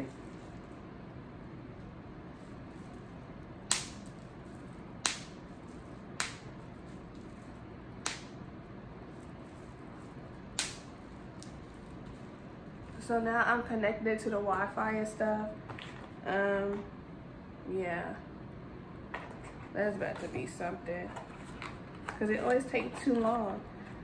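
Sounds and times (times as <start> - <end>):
low background hum: 0.0 - 24.0.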